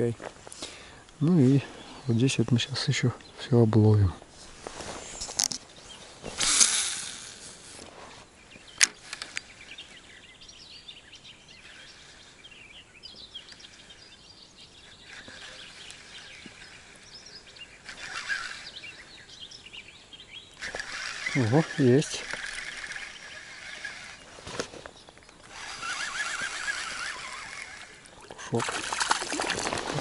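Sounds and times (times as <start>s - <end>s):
faint birdsong: 0.0s - 30.0s.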